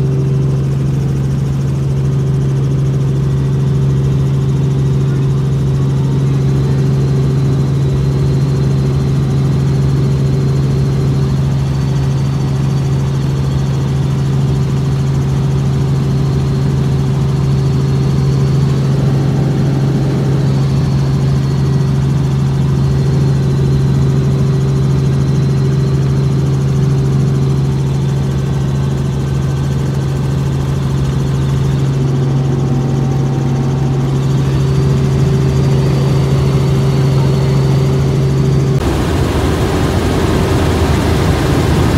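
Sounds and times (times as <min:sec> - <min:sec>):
helicopter engine and rotors: 0:00.0 - 0:41.9.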